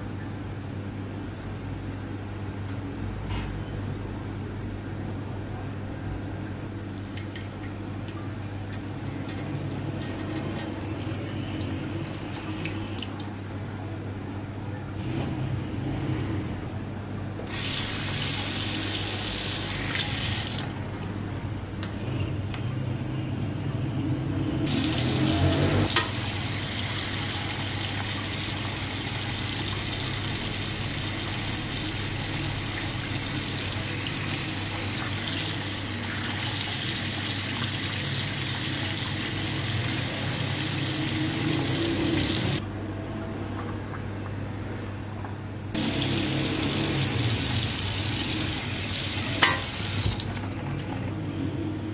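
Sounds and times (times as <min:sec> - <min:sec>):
tap water running into sink: 0:06.9 - 0:13.3, 0:17.5 - 0:20.8, 0:24.7 - 0:42.6, 0:45.8 - 0:50.9.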